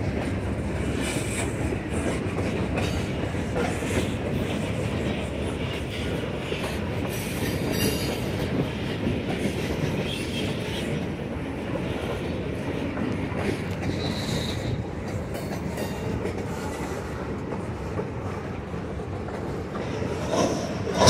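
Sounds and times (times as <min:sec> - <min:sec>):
wheels clacking over rail joints: 0:00.0 - 0:21.0.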